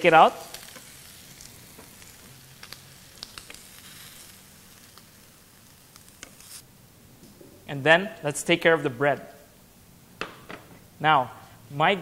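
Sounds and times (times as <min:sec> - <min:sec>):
bacon sizzling on a grill pan: 0:00.0 - 0:06.6.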